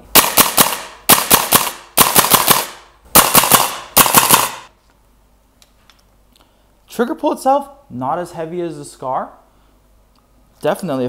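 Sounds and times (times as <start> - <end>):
airsoft rifle shots: 0.1 - 4.7.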